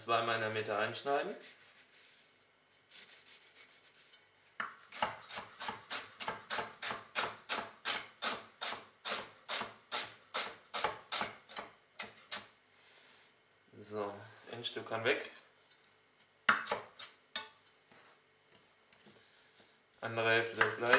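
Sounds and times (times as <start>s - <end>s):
knife chopping on wooden board: 4.6s - 8.8s, 20.5s - 20.9s.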